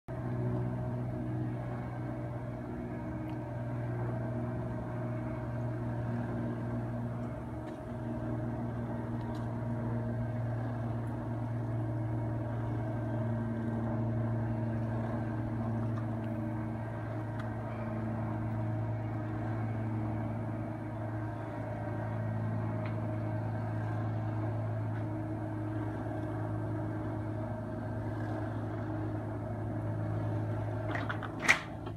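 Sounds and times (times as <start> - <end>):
electric roller motors humming: 0.1 - 31.9.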